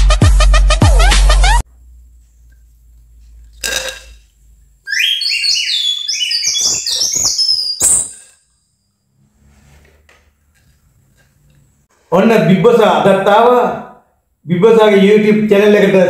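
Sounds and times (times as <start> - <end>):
high whistling chirps: 4.9 - 9.1.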